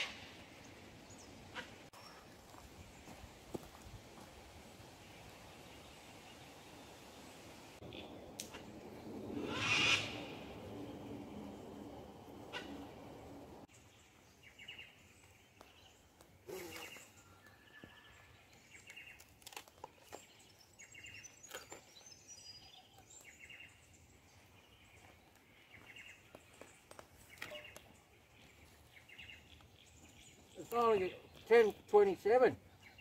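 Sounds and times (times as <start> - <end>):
short bird calls: 9.4 - 10.6, 16.5 - 17.8.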